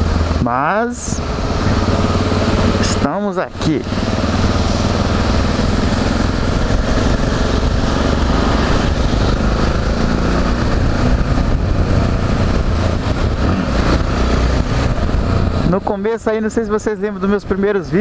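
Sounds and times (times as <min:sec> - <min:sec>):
motorcycle engine running: 0:00.0 - 0:18.0
wind and wet road noise: 0:00.0 - 0:18.0.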